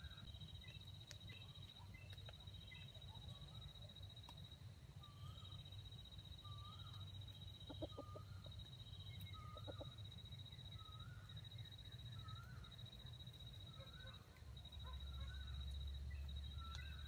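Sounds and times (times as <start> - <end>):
soft repeating chirp: 0.0 - 17.0
rooster clucking softly: 7.7 - 8.3.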